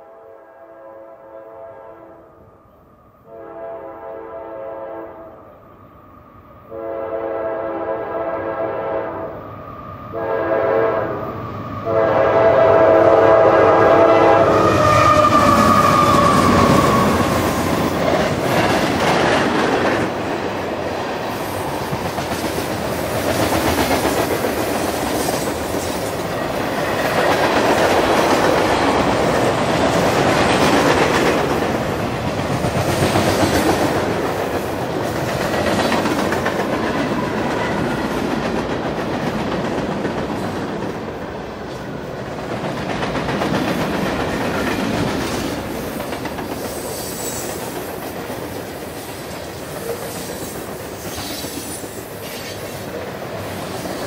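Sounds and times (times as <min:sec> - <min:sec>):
train air horn blasts: 0:00.0 - 0:02.4, 0:03.2 - 0:05.6, 0:06.6 - 0:09.4, 0:10.1 - 0:17.8
freight train rumbling past: 0:00.0 - 0:54.0.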